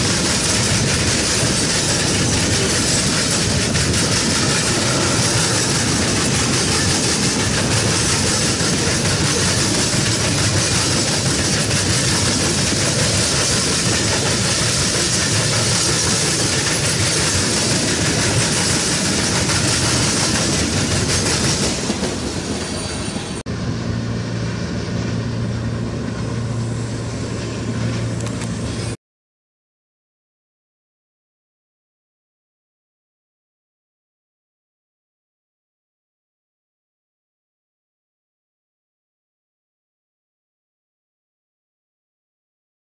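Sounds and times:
distant train hum: 0.0s - 29.0s
train wheels rushing on rails: 0.0s - 29.0s.

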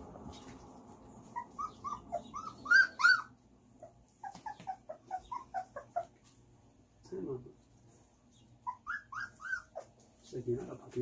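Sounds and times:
puppies whimpering and yelping: 1.2s - 6.3s, 8.5s - 10.0s.

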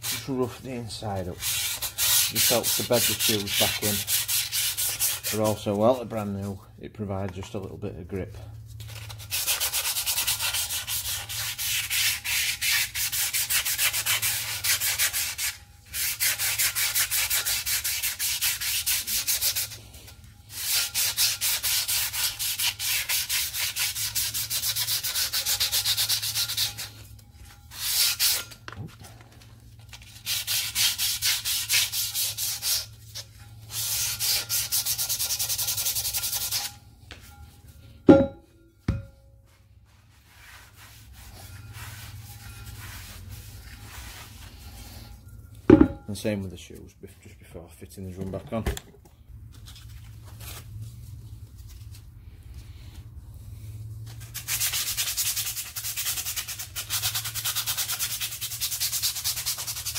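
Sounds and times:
sharp knock: 38.1s - 39.1s.

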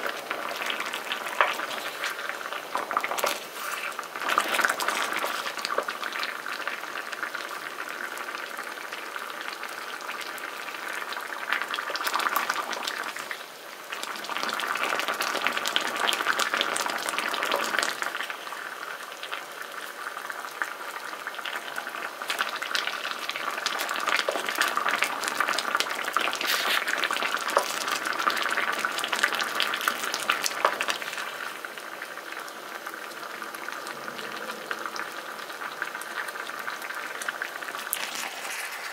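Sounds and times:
sauce bubbling in a pan: 0.0s - 38.9s
wooden spatula scraping: 1.3s - 5.9s, 26.4s - 27.0s, 37.8s - 38.9s.

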